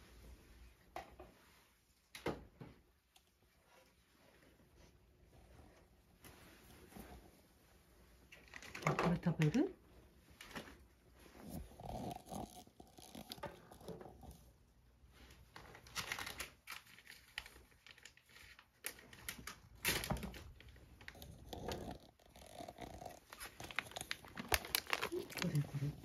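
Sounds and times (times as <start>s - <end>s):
plastic bag crinkling: 11.4s - 14.5s, 15.5s - 26.0s.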